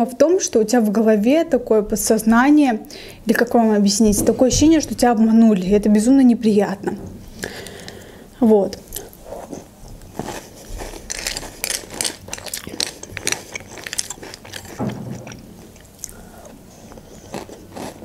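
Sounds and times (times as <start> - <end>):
crunching and chewing cereal: 8.9 - 18.0.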